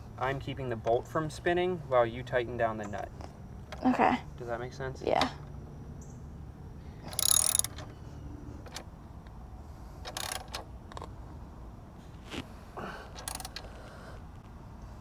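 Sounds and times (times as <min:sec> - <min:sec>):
ratchet wrench clicking: 0:07.0 - 0:07.9, 0:10.0 - 0:11.1, 0:13.2 - 0:13.7.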